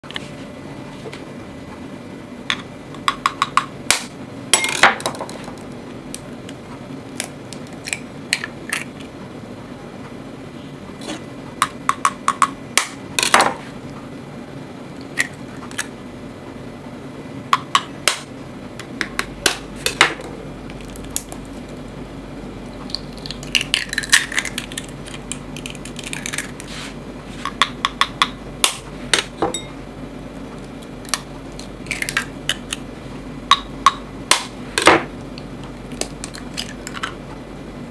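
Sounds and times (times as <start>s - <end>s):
faint steady hum: 0.0s - 37.9s
eggs cracking on a bowl: 7.2s - 9.1s, 11.6s - 13.5s, 17.6s - 21.8s, 22.8s - 26.7s, 27.5s - 29.4s, 30.7s - 32.9s, 33.5s - 37.2s.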